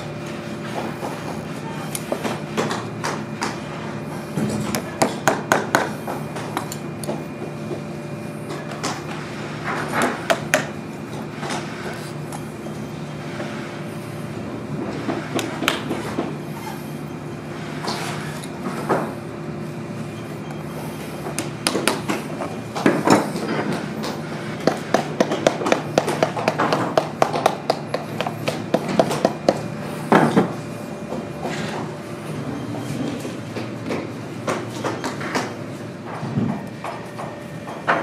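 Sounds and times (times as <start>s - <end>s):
low workshop hum: 0.0s - 38.0s
hammer tapping tacks: 24.6s - 29.6s.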